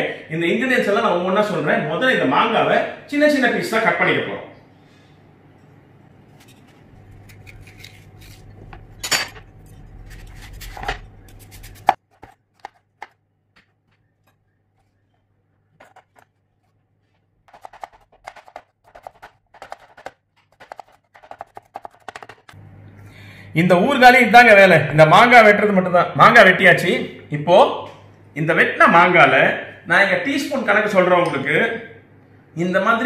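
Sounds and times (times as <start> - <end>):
knife chopping on wooden board: 17.5 - 22.5.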